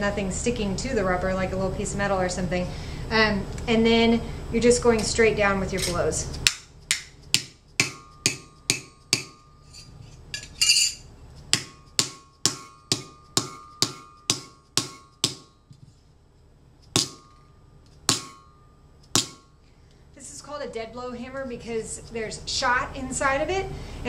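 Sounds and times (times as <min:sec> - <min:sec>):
hammer striking metal sheet: 0:06.4 - 0:09.5, 0:11.5 - 0:15.6, 0:16.9 - 0:17.4, 0:18.1 - 0:19.6
faint metallic ringing: 0:07.8 - 0:20.1.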